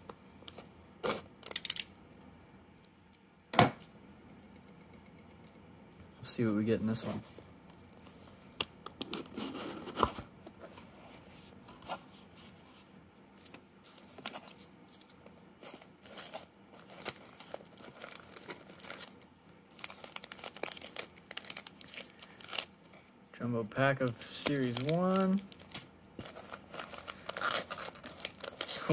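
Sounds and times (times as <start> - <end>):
crinkling and rustling packaging: 6.4 - 23.1, 23.8 - 28.9.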